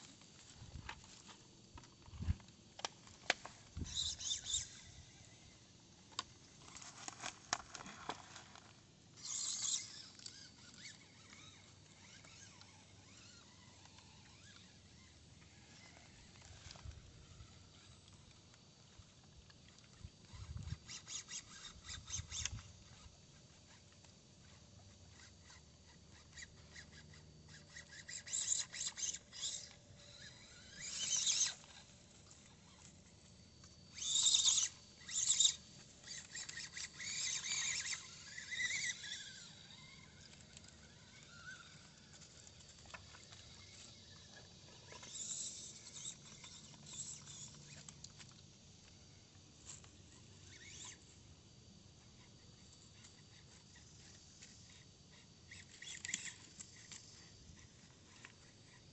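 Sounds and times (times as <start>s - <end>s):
small motor and gears whirring: 0.0s - 58.9s
tyres crackling on twigs and grit: 6.0s - 50.0s.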